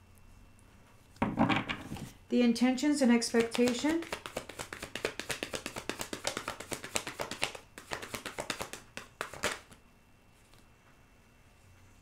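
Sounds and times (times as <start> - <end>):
faint room hiss: 0.0 - 12.0
cards being shuffled: 3.3 - 9.8.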